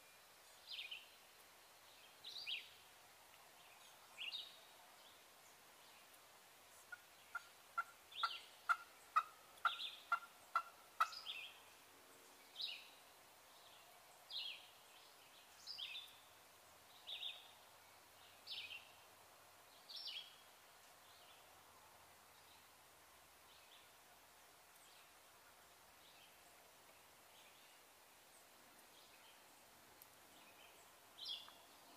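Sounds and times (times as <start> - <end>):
wild turkey yelping: 6.9 - 11.3.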